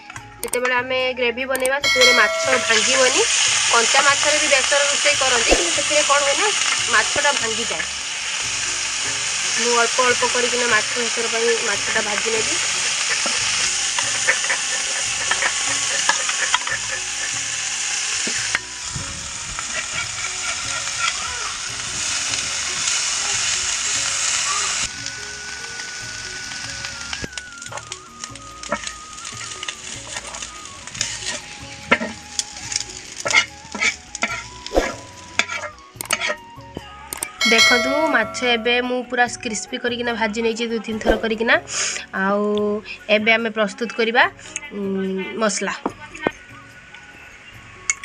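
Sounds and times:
fish sizzling in hot oil: 1.8 - 40.6, 41.2 - 44.6, 45.4 - 48.0
metal spatula scraping pan: 1.9 - 4.5, 11.8 - 18.7, 19.6 - 21.3, 33.2 - 36.4.

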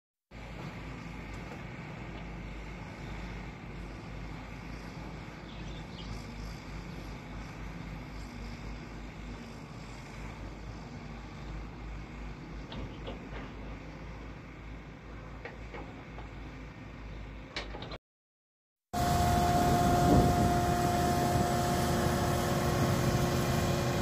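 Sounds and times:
excavator diesel engine hum: 0.4 - 18.0, 19.0 - 24.0
wind rumbling on microphone: 19.0 - 21.6.

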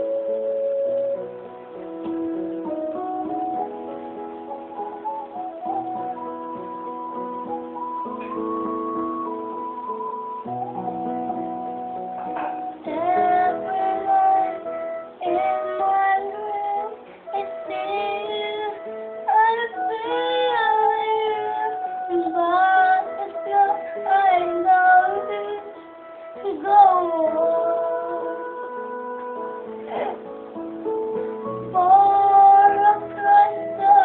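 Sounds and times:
instrumental music with guitar: 0.0 - 34.0
girl singing: 12.7 - 30.3, 31.4 - 34.0.

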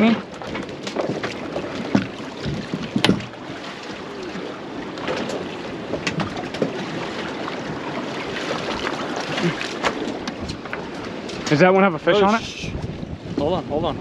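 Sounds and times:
water around a boat: 0.0 - 14.0
wind: 0.0 - 14.0
sharp knocks and clicks: 0.5 - 3.4.

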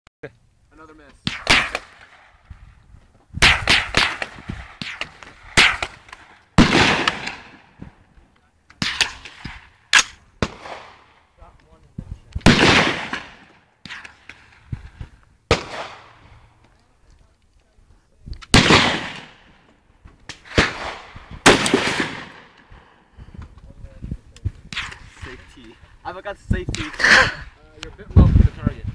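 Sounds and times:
gunshots: 1.2 - 2.4, 3.4 - 8.0, 8.8 - 11.3, 12.4 - 14.6, 15.5 - 16.4, 18.5 - 19.6, 20.3 - 22.7, 24.7 - 25.4.

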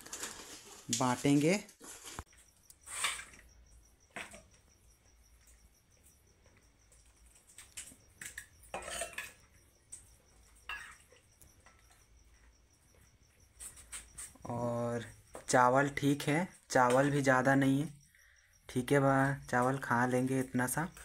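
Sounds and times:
metal ladle clinking on bowls: 8.7 - 9.4.

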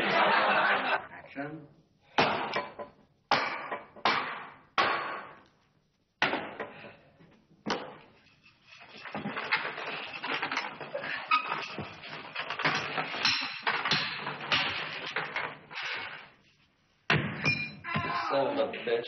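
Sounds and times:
hatchet striking wood: 3.3 - 5.4.

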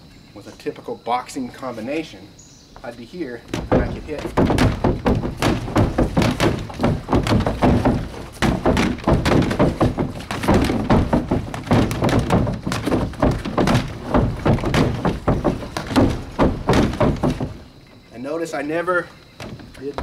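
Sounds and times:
punches thudding on dummy: 3.5 - 17.8.

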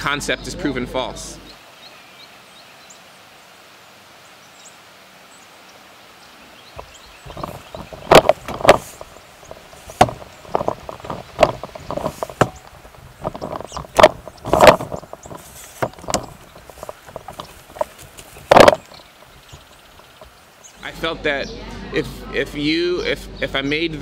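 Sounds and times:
irregular knocks and clicks: 6.8 - 20.4.

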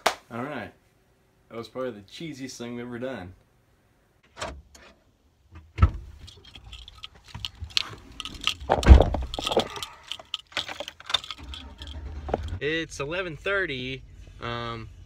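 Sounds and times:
clicks and clinks: 6.2 - 12.6
phone handling rustling: 6.2 - 12.6.

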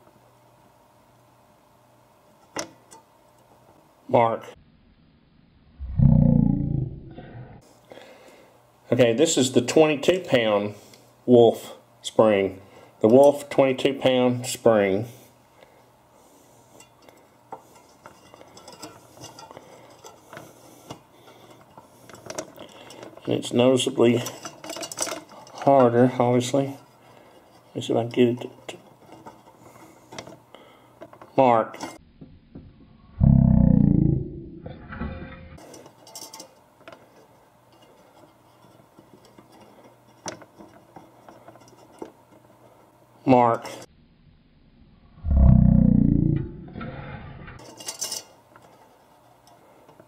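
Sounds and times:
faint low hum: 0.0 - 50.0
spring clicks and clinks: 35.6 - 36.6.

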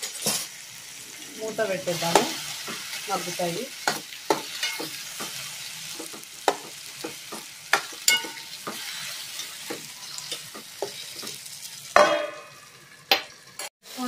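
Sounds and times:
tomatoes sizzling in oil: 0.0 - 14.0
metal spoon scraping a pan: 1.4 - 12.6
steel lid clanking onto pan: 8.0 - 8.5.

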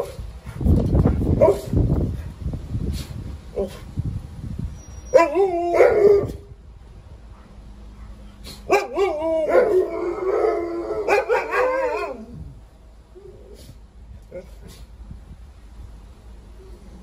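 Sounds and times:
dogs howling and yowling: 5.1 - 6.4, 8.7 - 12.5.

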